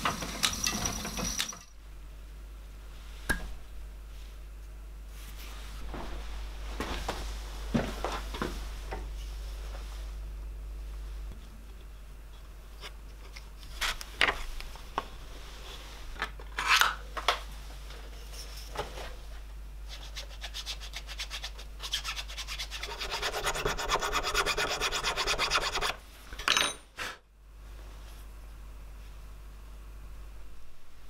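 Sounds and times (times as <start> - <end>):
file scraping wood: 19.9 - 26.0.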